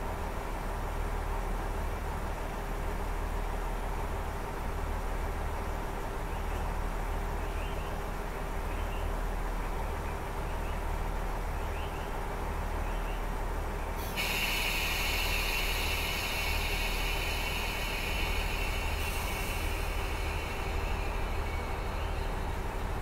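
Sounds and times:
diesel engine idling: 0:00.0 - 0:23.0
air brakes hissing: 0:13.9 - 0:23.0.

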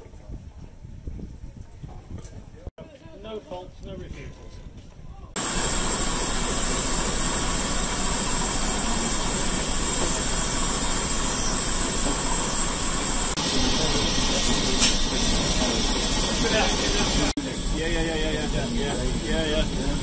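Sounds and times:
higher louder steam hiss: 0:05.4 - 0:20.0
steam hissing: 0:05.4 - 0:20.0.

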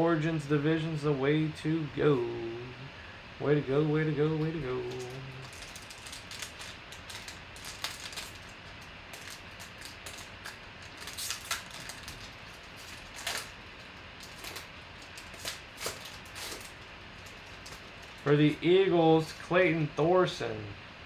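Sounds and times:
foil wrapper crinkling and tearing: 0:04.9 - 0:18.6.

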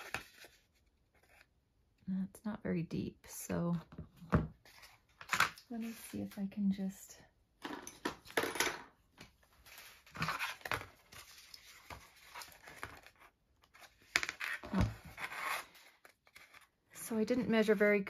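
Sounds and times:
paper rustling and scraping: 0:00.0 - 0:01.5, 0:09.4 - 0:16.8.

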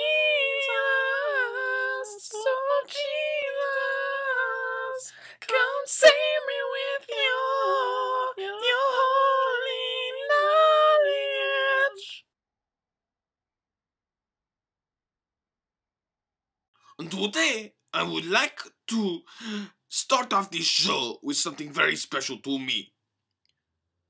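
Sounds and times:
high voice singing unaccompanied: 0:00.0 - 0:12.2, 0:17.0 - 0:18.5.

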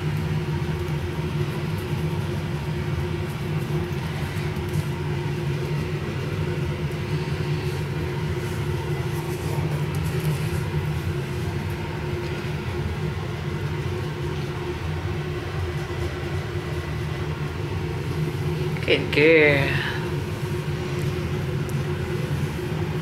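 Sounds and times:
low rumbling hum: 0:00.0 - 0:23.0.

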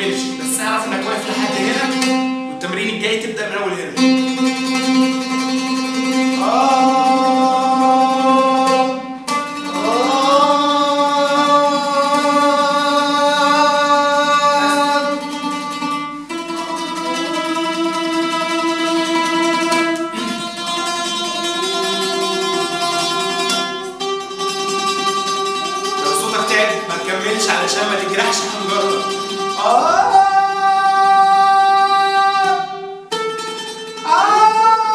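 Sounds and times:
man singing held notes: 0:00.0 - 0:03.2
oud plucking: 0:00.0 - 0:34.9.

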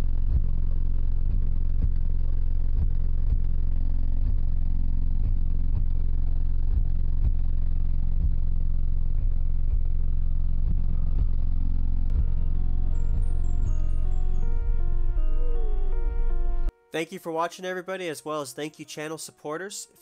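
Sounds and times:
loud deep bass music: 0:00.0 - 0:16.7.

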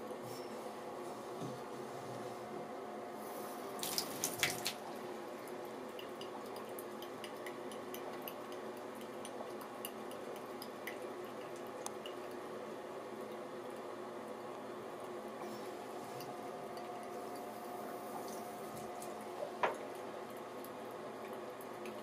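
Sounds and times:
water trickling: 0:03.8 - 0:12.4
cat lapping water: 0:03.8 - 0:12.5.

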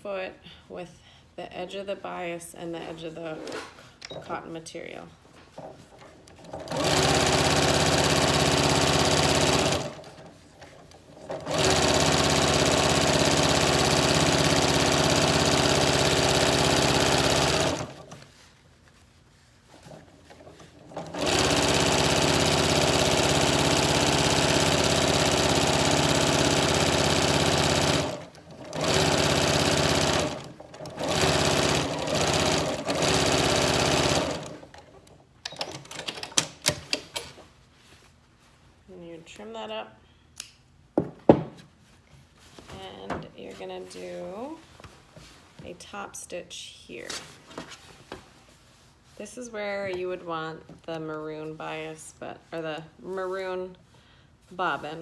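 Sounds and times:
sewing machine stitching: 0:06.3 - 0:18.2, 0:19.9 - 0:36.4.

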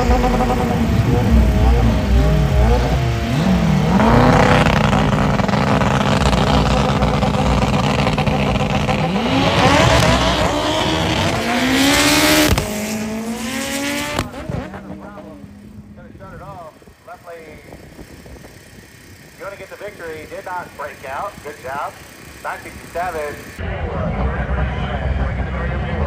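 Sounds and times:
racing car engine revving: 0:00.0 - 0:26.0.

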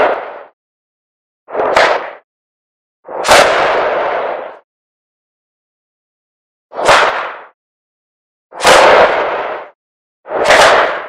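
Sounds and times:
firework shots: 0:00.0 - 0:00.6, 0:01.5 - 0:02.2, 0:03.1 - 0:04.6, 0:06.8 - 0:07.6, 0:08.5 - 0:11.0.

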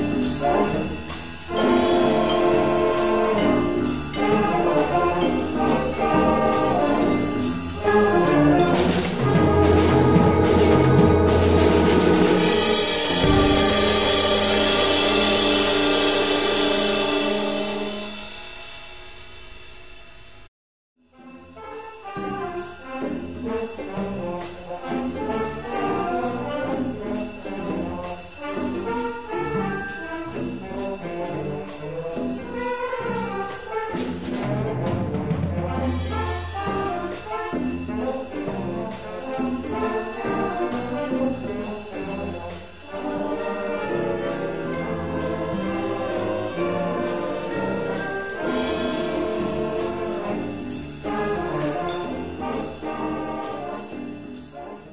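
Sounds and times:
jazz band with horns: 0:00.0 - 0:19.8, 0:21.1 - 0:54.9.

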